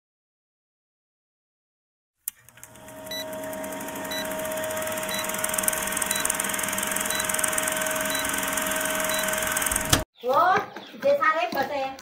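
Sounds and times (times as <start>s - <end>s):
film projector clatter: 2.3s - 10.0s.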